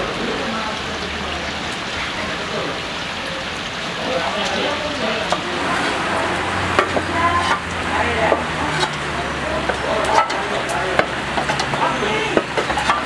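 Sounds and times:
food sizzling in hot oil: 0.0 - 13.0
metal utensil knocking pot: 6.7 - 9.0, 9.6 - 13.0.

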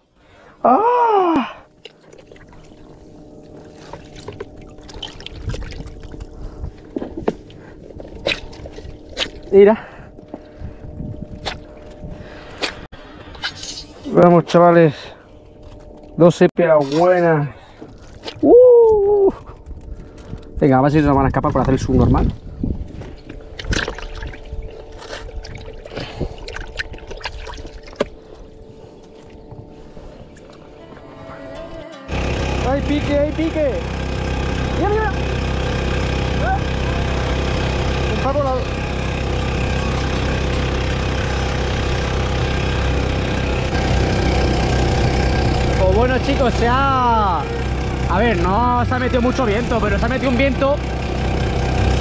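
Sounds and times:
water sloshing and dripping: 1.6 - 12.8, 23.0 - 29.6
small splashes and clicks: 1.7 - 9.5, 23.2 - 28.4.

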